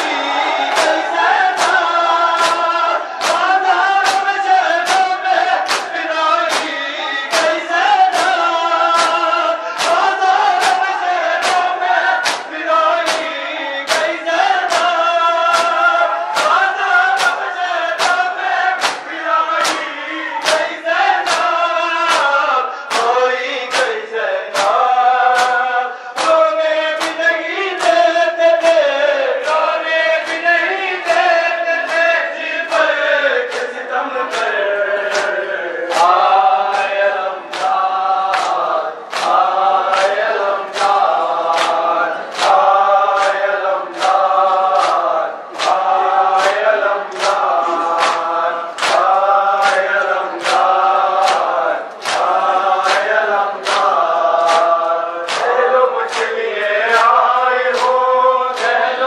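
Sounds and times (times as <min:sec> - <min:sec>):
men chanting a lament: 0:00.0 - 0:59.0
hands slapping bare chests: 0:02.4 - 0:13.3, 0:18.8 - 0:21.5, 0:48.0 - 0:52.3.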